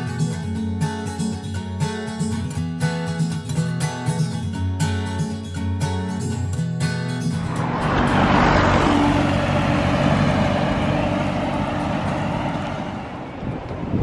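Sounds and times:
vehicle driving past: 0:07.2 - 0:13.4.

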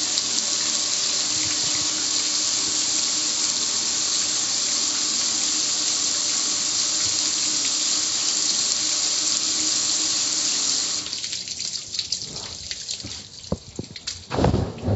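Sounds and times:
water dripping off grill: 0:00.0 - 0:04.1, 0:05.6 - 0:14.6
hose water pouring on metal grill: 0:00.0 - 0:14.9.

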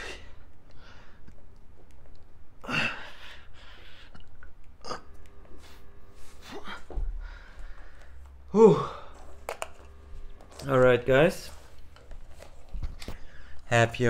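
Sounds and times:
man breathing hard: 0:02.6 - 0:04.3, 0:05.6 - 0:09.3.

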